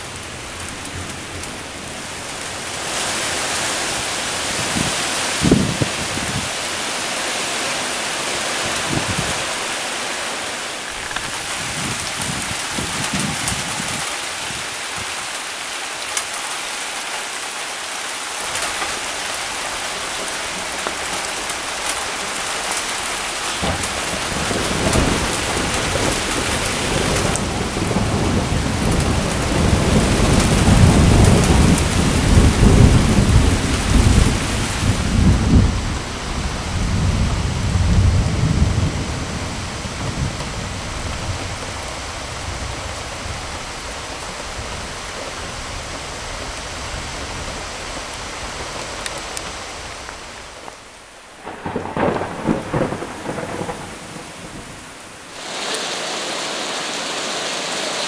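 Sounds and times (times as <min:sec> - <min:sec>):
steady rain hissing: 0:00.0 - 0:58.0
thunder rumbling: 0:18.5 - 0:50.1, 0:51.3 - 0:55.7.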